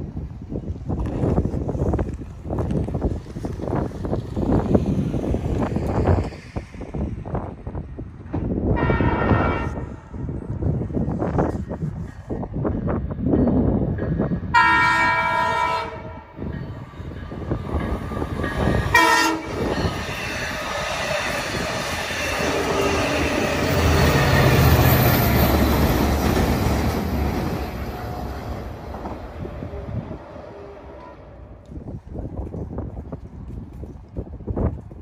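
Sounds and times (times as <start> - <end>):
deep train rumble: 0.0 - 35.0
train horn blasts: 8.7 - 9.9, 14.5 - 16.4, 18.9 - 19.7.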